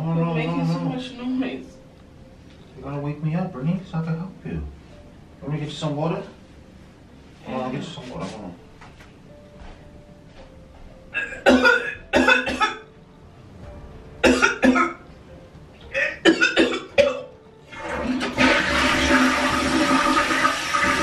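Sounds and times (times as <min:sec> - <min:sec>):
toilet flushing: 0:17.7 - 0:21.0.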